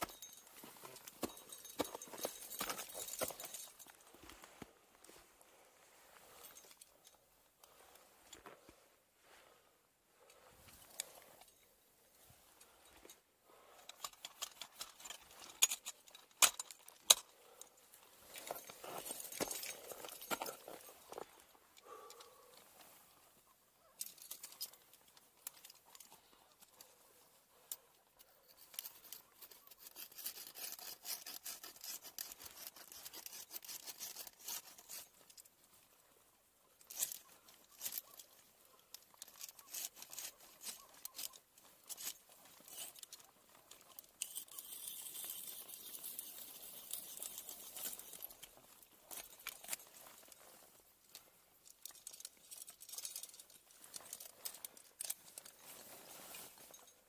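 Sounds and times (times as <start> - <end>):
ice tools scraping and crunching ice: 14.0 - 21.5, 28.4 - 35.9, 36.8 - 56.9
clothing rustle: 36.8 - 57.0.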